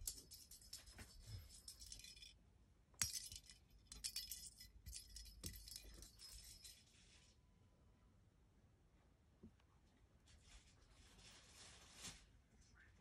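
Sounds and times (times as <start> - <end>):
small bell jingling in toy ball: 0.0 - 2.4, 3.0 - 6.9.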